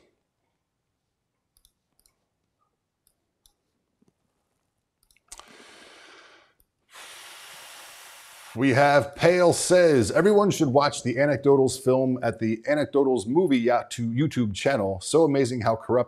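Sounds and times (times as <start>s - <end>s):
computer mouse clicks: 1.5s - 2.2s, 5.0s - 5.5s
steady hiss: 5.5s - 9.0s.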